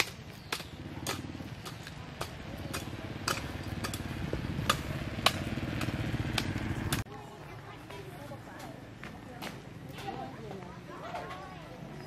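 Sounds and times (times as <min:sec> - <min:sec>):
small engine running: 0:02.3 - 0:07.0.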